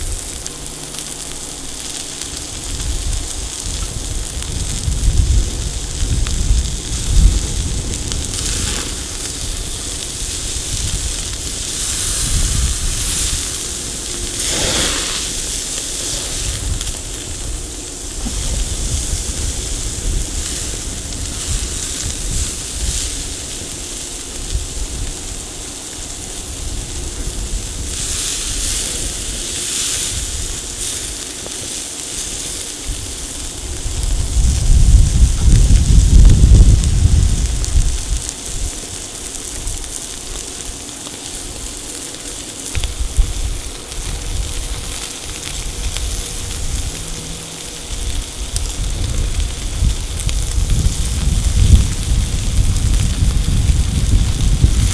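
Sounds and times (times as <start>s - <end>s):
low rumble: 0.0s - 25.6s, 42.7s - 54.9s
steaks sizzling on a grill: 0.0s - 54.9s.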